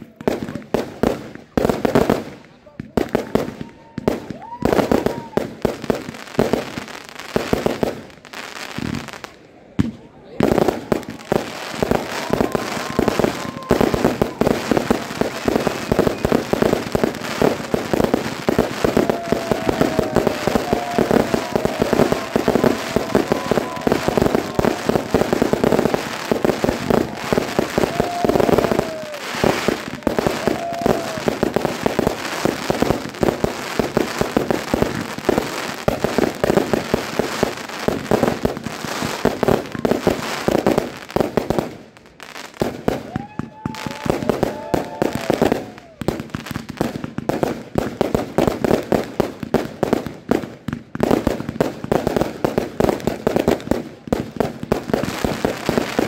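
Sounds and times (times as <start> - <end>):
fireworks bangs and crackling: 0.0 - 56.0
fireworks whistles: 10.5 - 40.9, 42.7 - 46.7.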